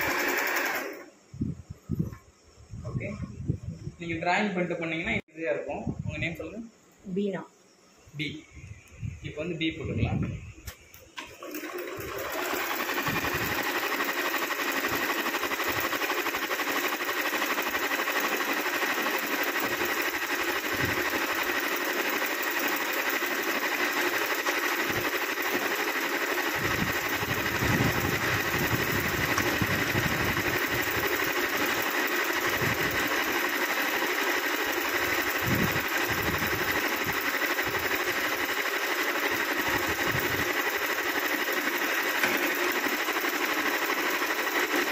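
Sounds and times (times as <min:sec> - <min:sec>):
sewing machine running: 0:00.0 - 0:01.1, 0:11.2 - 0:44.9.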